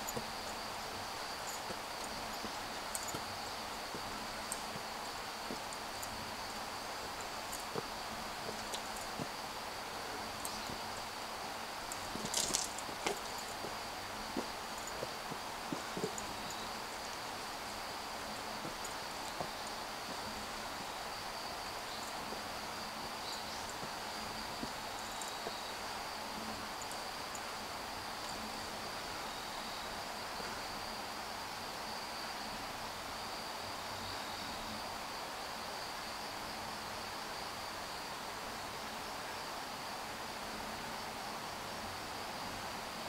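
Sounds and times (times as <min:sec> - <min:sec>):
light footsteps: 0:00.0 - 0:27.3
insects singing: 0:00.0 - 0:31.0
soft background hiss: 0:00.0 - 0:43.0.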